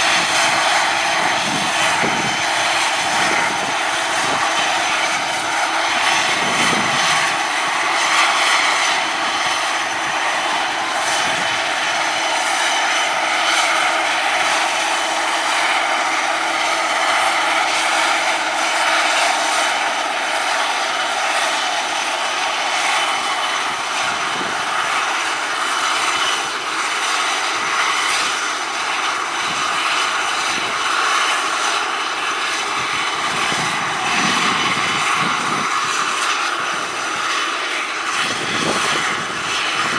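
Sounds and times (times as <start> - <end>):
turboprop engines running: 0.0 - 39.9.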